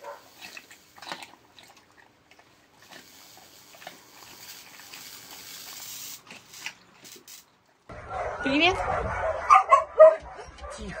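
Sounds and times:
dog chewing food: 0.0s - 5.0s.

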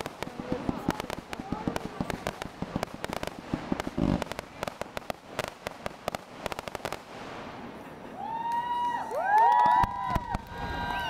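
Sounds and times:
fireworks boom: 0.0s - 7.8s
fireworks crackling and popping: 0.0s - 11.0s.

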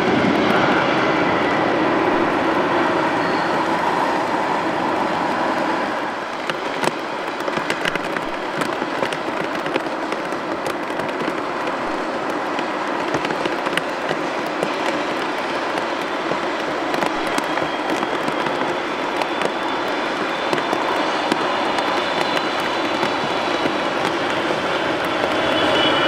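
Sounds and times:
jet engine rumble: 0.0s - 26.0s
sharp crackles: 6.2s - 26.0s.

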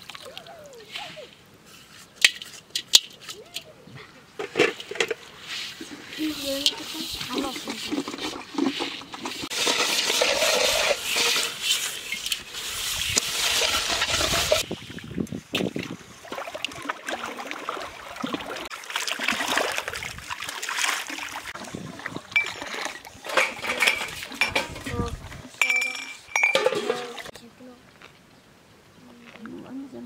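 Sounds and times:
water splashing and sloshing: 0.0s - 3.7s, 4.3s - 27.4s
metal pots being scrubbed: 4.4s - 14.8s, 20.7s - 27.3s.

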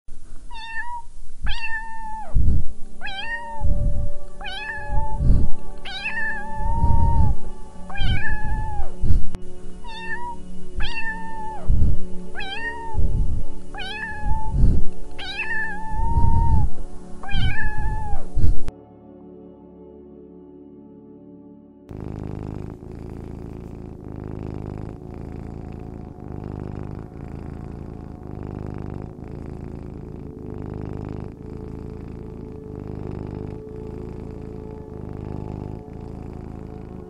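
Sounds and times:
cat meowing: 0.5s - 2.4s, 3.0s - 9.0s, 9.8s - 11.8s, 12.4s - 18.7s
background music: 1.5s - 37.0s.

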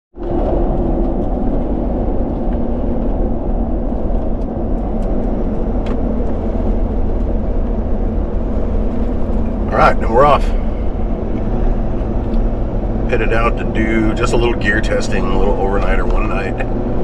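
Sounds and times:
road and engine noise: 0.1s - 17.0s.

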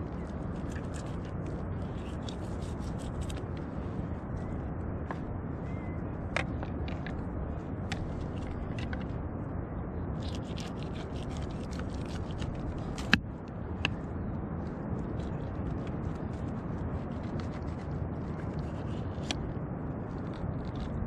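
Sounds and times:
knife scraping fish: 10.2s - 13.2s.

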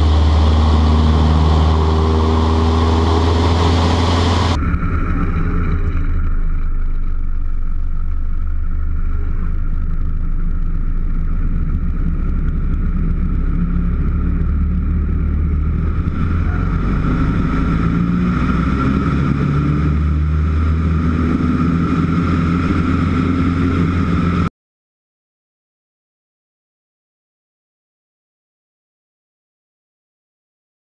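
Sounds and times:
light aircraft engine drone: 0.0s - 24.5s.

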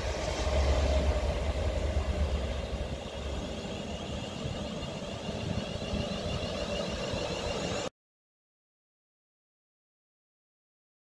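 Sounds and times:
diesel locomotive engine running: 0.0s - 7.9s.

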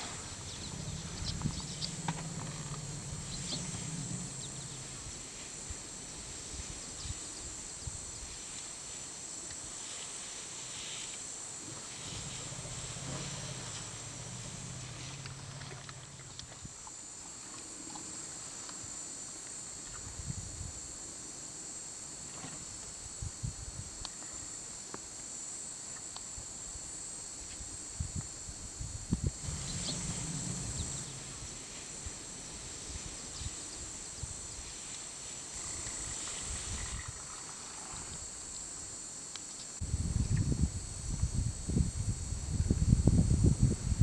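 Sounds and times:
low thumps and rumbles: 0.0s - 5.4s, 29.1s - 31.7s
insects chirring: 0.0s - 44.0s.

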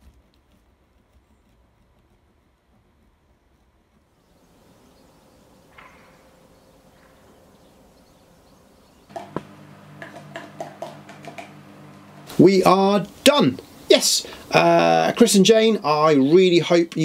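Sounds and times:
steady low hum: 4.4s - 15.2s
faint hiss: 9.1s - 17.0s.

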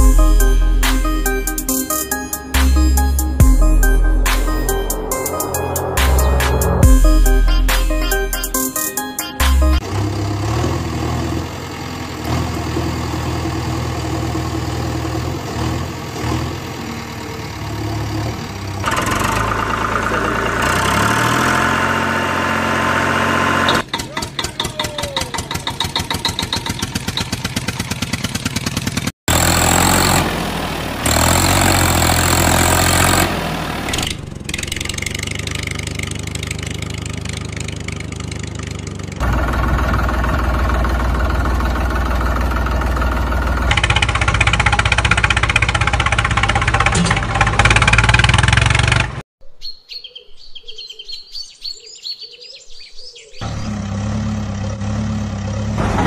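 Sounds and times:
vehicle engines idling: 0.0s - 49.2s, 53.4s - 56.0s
birds chirping: 23.6s - 28.0s, 49.4s - 55.8s.

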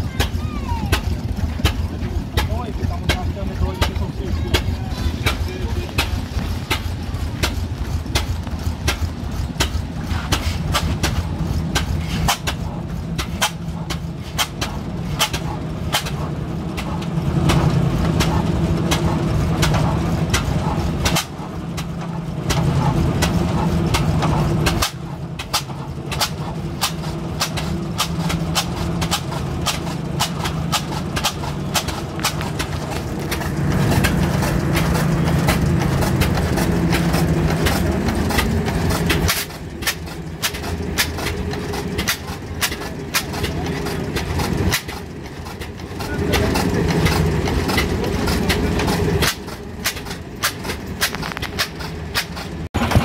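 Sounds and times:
stationary engine knocking: 0.0s - 53.0s.

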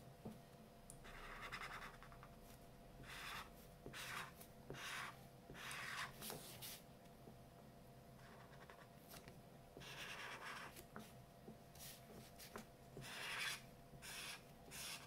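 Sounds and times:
marker scratching on paper: 1.1s - 2.2s, 3.0s - 6.8s, 8.2s - 8.9s, 9.8s - 11.1s, 11.8s - 15.0s.

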